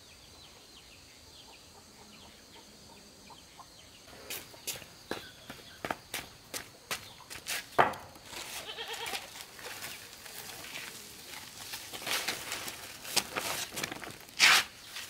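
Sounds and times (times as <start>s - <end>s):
rustling: 7.6s - 15.0s
farm animals calling: 8.3s - 11.6s.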